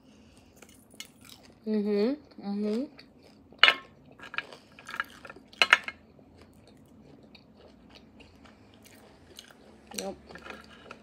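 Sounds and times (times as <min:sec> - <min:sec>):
chewing with small clicks: 0:06.3 - 0:11.0.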